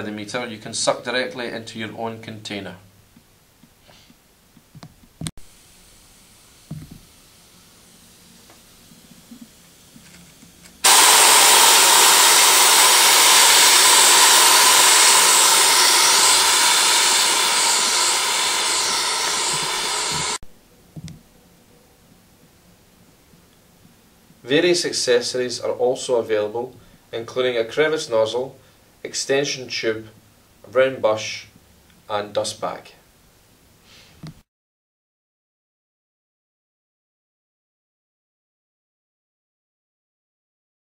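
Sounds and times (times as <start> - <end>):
air gun hissing rush: 5.4 - 20.4.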